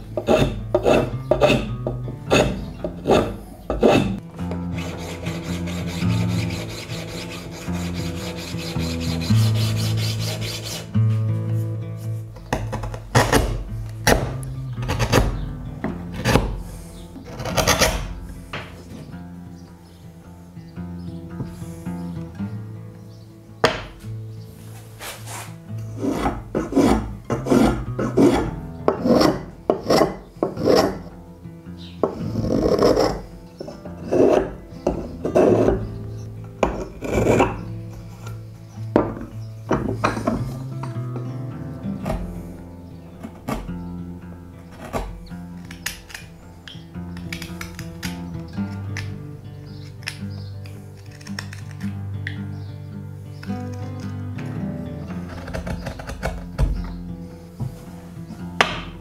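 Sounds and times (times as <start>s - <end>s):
scraping strokes on wood: 0.0s - 19.1s, 24.5s - 31.2s, 32.0s - 41.3s
background music with bass: 0.0s - 59.0s
rough rubbing strokes on wood: 2.3s - 12.3s, 24.5s - 31.0s.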